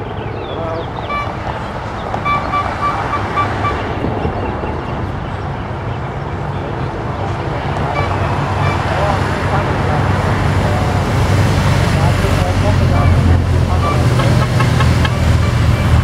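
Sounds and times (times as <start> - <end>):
cars and motorcycles driving past: 0.0 - 16.0
short high beeps: 2.2 - 3.8.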